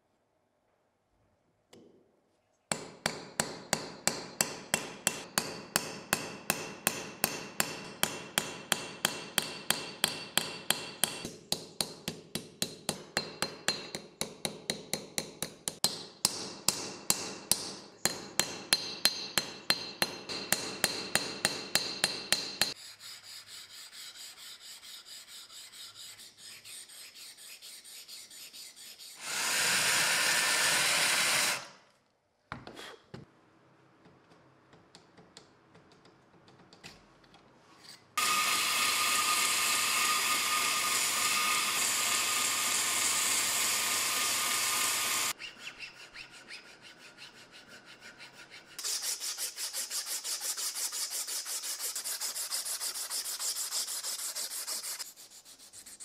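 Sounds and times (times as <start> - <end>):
hammer tapping on metal: 2.7 - 22.8.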